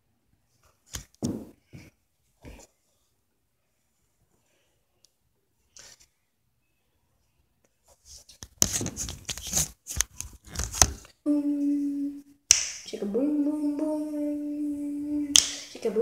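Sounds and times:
voice holding long notes: 11.3s - 16.0s.

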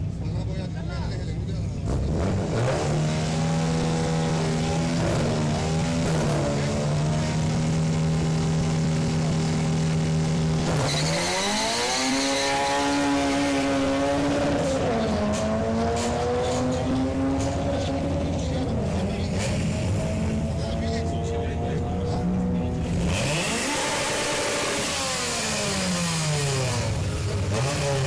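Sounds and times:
drag car engine revving: 1.6s - 28.0s
tyre squeal: 10.8s - 11.4s.

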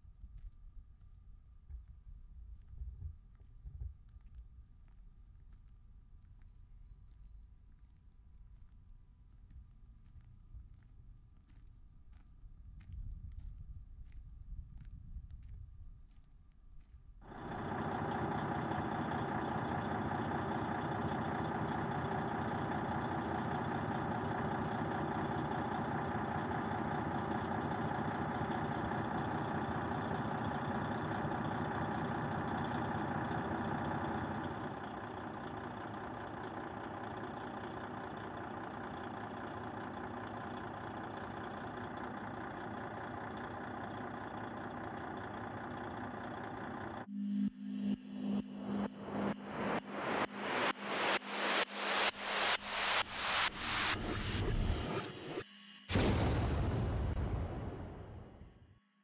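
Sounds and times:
diesel engine idling: 17.2s - 47.1s.

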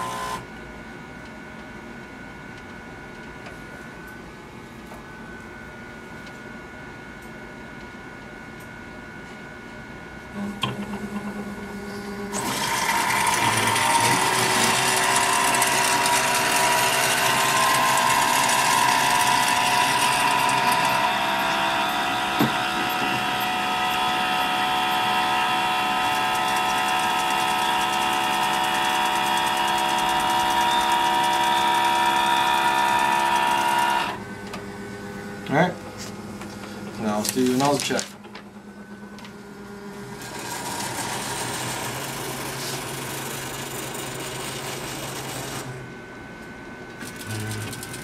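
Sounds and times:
printer motor whir: 0.0s - 0.5s, 10.3s - 48.0s
printer carriage mechanical whine: 0.0s - 48.0s.

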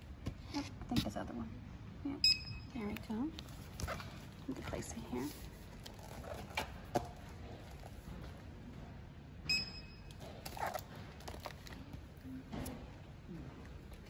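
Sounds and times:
short electronic beep: 9.5s - 10.1s.

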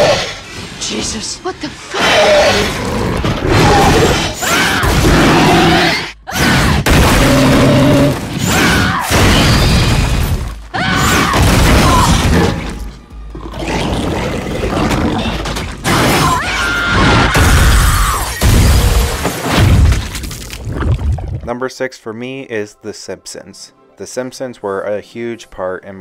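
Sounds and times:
dramatic music: 0.0s - 19.8s
booms and crashes: 6.6s - 12.8s.

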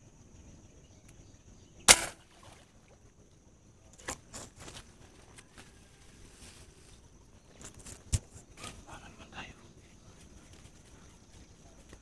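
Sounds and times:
air gun crack: 1.9s - 2.2s
plants rustling: 4.0s - 9.0s.

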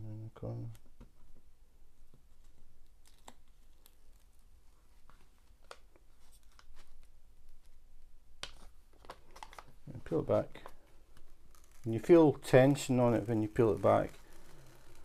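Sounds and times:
cover sheet peeling crackles: 2.4s - 7.8s, 8.4s - 15.0s.

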